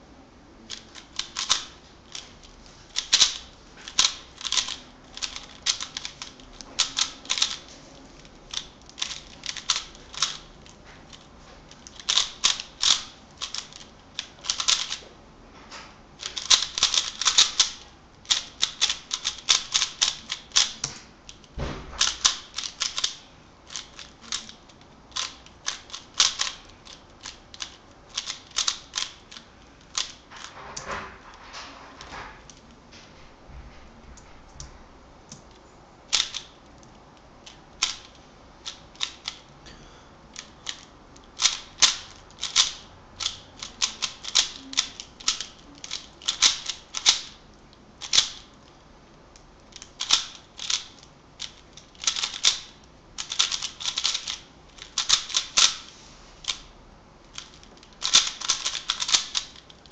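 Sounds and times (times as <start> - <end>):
puzzle cube layers clicking: 0.7 - 2.3, 3.0 - 7.6, 11.8 - 15.0, 16.2 - 30.2, 36.1 - 36.5, 40.3 - 47.4, 48.0 - 48.4, 49.7 - 55.8, 57.3 - 59.9.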